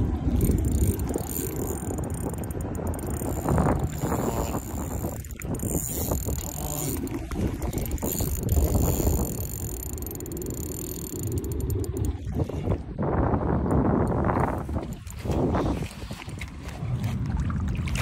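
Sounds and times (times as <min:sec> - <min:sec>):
fishing reel clicking and whirring: 0:00.1 - 0:12.3, 0:14.1 - 0:15.4.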